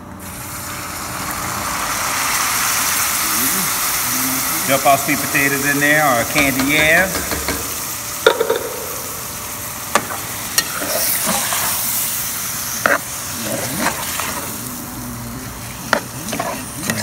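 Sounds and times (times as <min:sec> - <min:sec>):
food sizzling in grease: 0:00.2 - 0:17.0
metal spoon stirring: 0:15.9 - 0:17.0.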